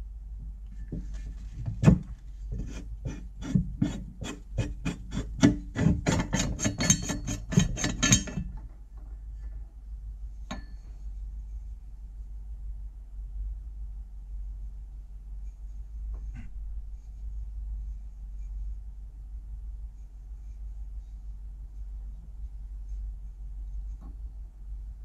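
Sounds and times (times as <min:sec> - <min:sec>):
gritty scraping clicks of threads: 0:01.8 - 0:08.8.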